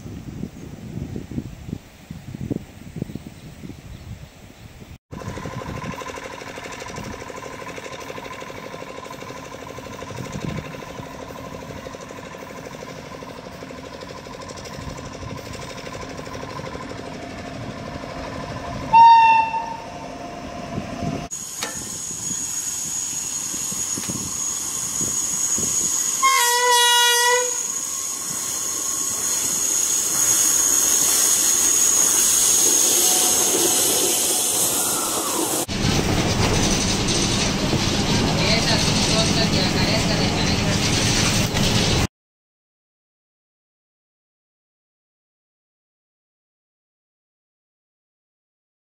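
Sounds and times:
electric locomotive rumbling past: 0:05.1 - 0:42.1
coaches rumbling with high whine: 0:05.2 - 0:42.0
train horn blasts: 0:18.9 - 0:20.2, 0:26.2 - 0:27.7.

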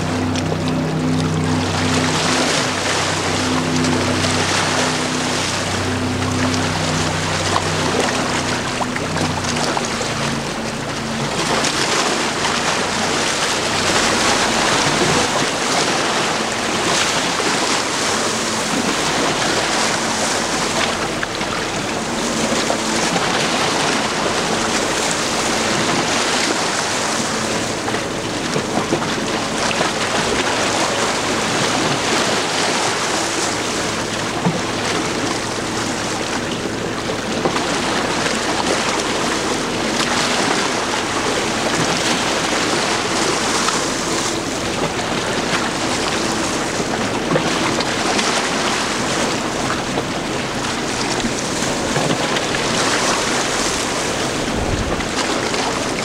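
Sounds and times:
choppy water lapping: 0:00.0 - 0:56.0
low engine hum: 0:00.0 - 0:56.0
wind buffeting microphone: 0:49.0 - 0:56.0.

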